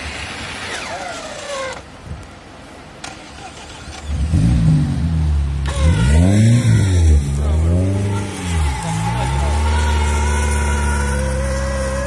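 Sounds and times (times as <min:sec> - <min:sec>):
car engine revving: 0:03.6 - 0:12.0.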